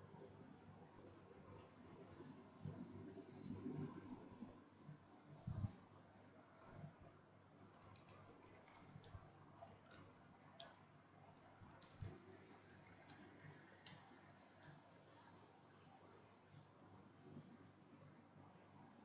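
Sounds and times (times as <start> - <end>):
keyboard typing: 7.6 - 14.8.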